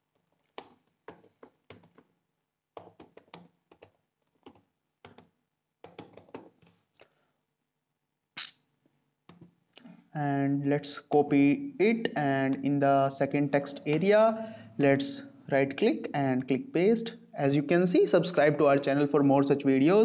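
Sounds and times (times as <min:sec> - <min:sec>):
keyboard typing clicks: 0:00.5 - 0:02.1, 0:02.8 - 0:06.6.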